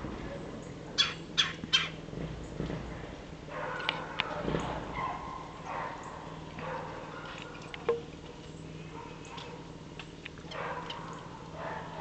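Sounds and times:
bird calling harshly: 0:01.0 - 0:02.0.

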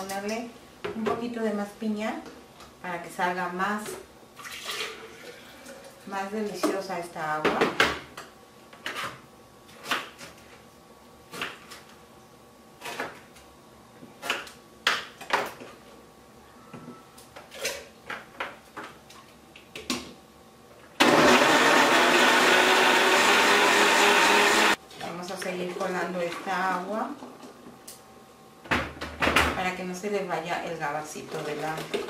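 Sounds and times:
blender running: 0:21.0 - 0:24.8.

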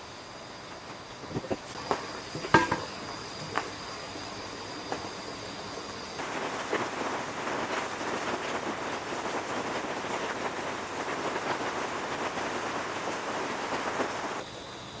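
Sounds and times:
crackling hiss with ticks: 0:00.0 - 0:15.0.

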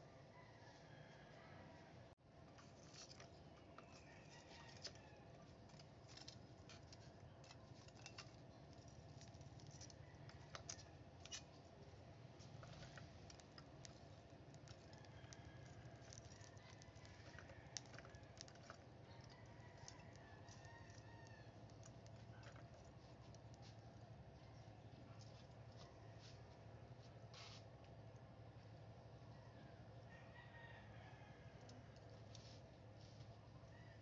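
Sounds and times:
metal tongs clinking on charcoal: 0:05.8 - 0:11.5, 0:13.3 - 0:23.0.

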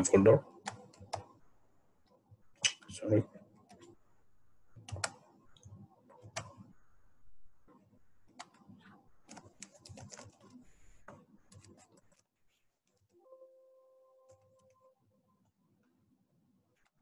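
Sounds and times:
computer mouse clicks: 0:00.6 - 0:01.4, 0:04.8 - 0:06.7, 0:08.3 - 0:12.2.

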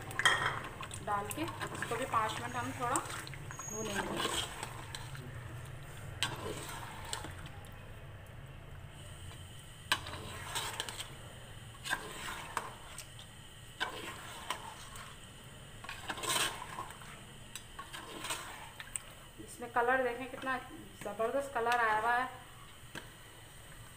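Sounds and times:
spoon stirring thick gravy: 0:00.0 - 0:07.8, 0:09.3 - 0:15.2, 0:15.8 - 0:19.3.

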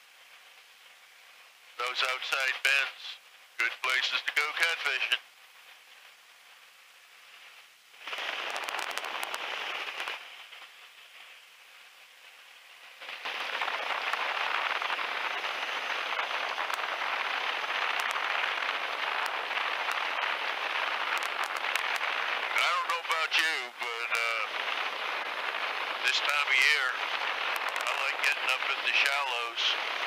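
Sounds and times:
rushing wind: 0:08.0 - 0:10.4, 0:13.0 - 0:23.0, 0:23.7 - 0:30.0.

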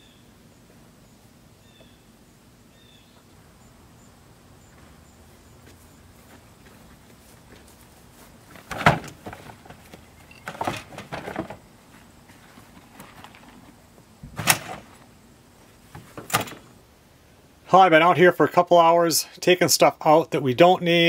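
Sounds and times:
containers knocking and clunking: 0:08.5 - 0:11.7.

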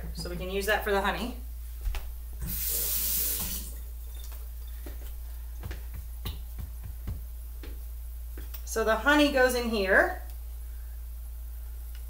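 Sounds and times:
tap water running: 0:02.2 - 0:07.2.

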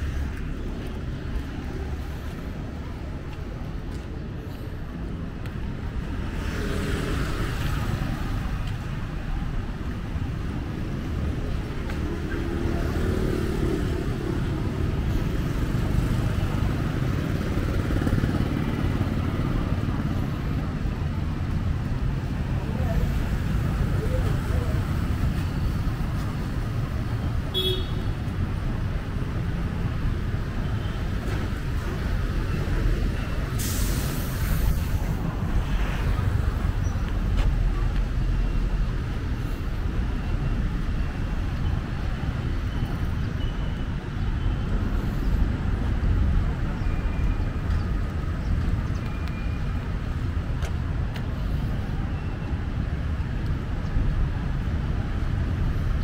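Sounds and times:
traffic engines rumbling: 0:00.0 - 0:56.0
air brake hiss: 0:33.5 - 0:34.9.

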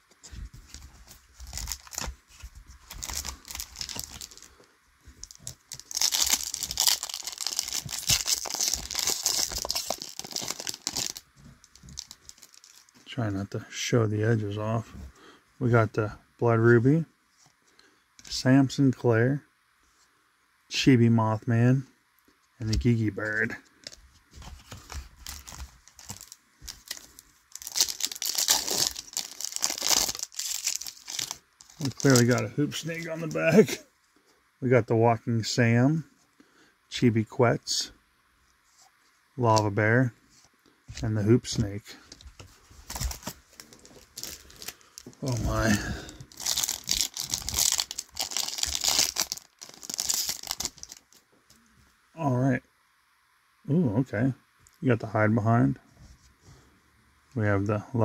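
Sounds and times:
plastic foil wrapper tearing: 0:01.4 - 0:02.1, 0:02.8 - 0:04.5, 0:05.2 - 0:12.9, 0:25.2 - 0:33.3, 0:42.8 - 0:51.2
cards rustling and clicking: 0:05.2 - 0:13.0, 0:22.7 - 0:33.6, 0:42.1 - 0:51.2.

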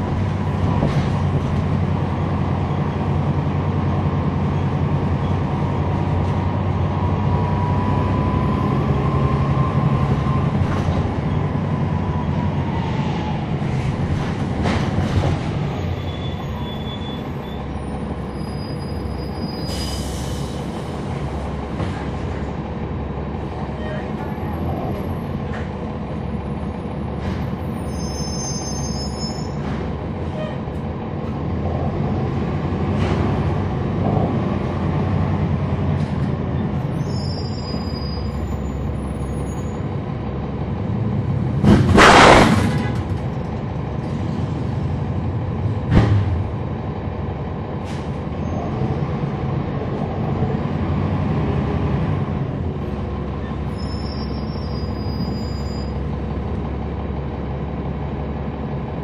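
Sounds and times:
bus engine and road noise: 0:00.0 - 0:59.0
air hiss from bus: 0:19.6 - 0:20.8.

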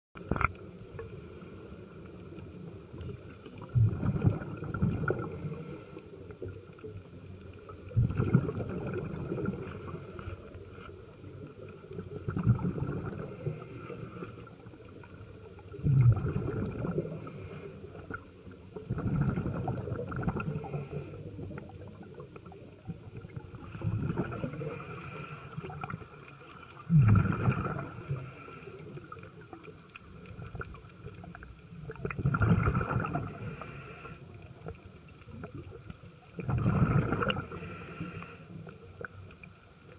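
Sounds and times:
exhaled bubbles rumbling underwater: 0:00.2 - 0:39.9
regulator inhalation hiss: 0:00.9 - 0:01.8, 0:05.2 - 0:06.2, 0:09.6 - 0:10.6, 0:13.2 - 0:14.4, 0:17.0 - 0:18.0, 0:20.5 - 0:21.3, 0:24.4 - 0:26.6, 0:27.9 - 0:28.9, 0:33.3 - 0:34.2, 0:37.4 - 0:38.6.

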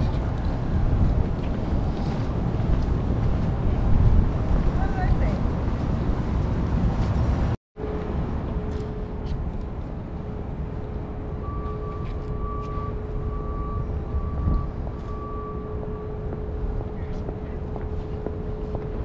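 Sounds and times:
city traffic rumble: 0:00.0 - 0:19.0
high beeps: 0:11.4 - 0:16.4.

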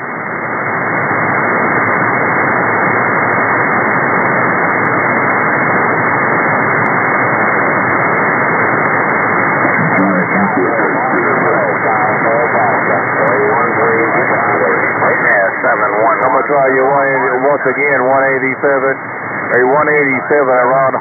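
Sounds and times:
radio static hiss: 0:08.7 - 0:21.0.

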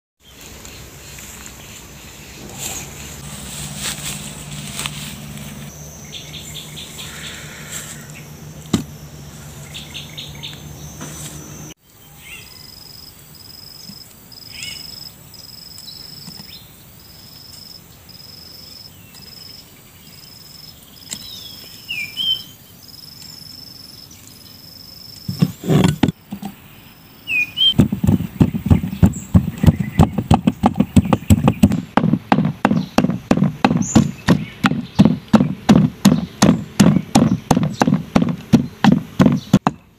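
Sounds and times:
pestle pounding in mortar: 0:27.7 - 0:39.9.

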